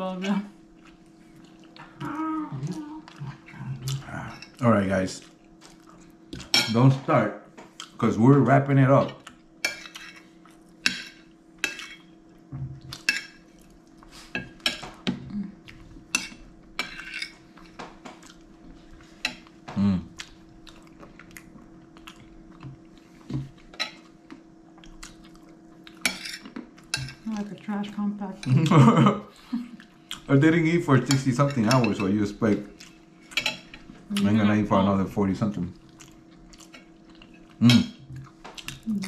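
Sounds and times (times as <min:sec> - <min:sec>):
faint steady hum: 0:00.0 - 0:39.0
chewing: 0:00.8 - 0:02.0, 0:02.6 - 0:06.5, 0:20.1 - 0:27.2, 0:35.8 - 0:38.9.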